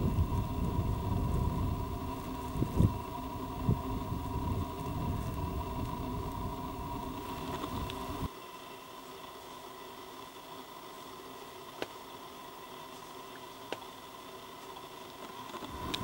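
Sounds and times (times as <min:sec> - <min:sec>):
wind rumbling on microphone: 0:00.0 - 0:08.3, 0:15.7 - 0:16.0
faint high hum: 0:00.0 - 0:16.0.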